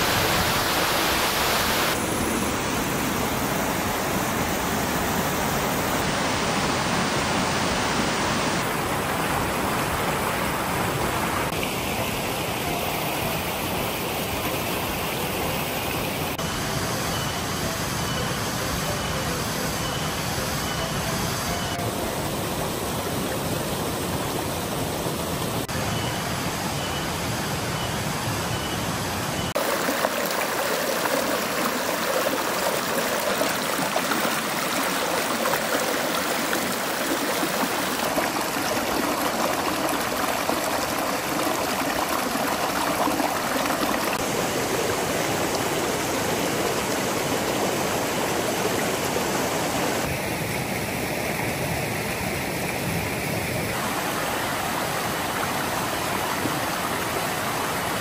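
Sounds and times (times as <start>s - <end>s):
stream splashing over stones: 29.5s - 50.1s, 53.7s - 58.0s.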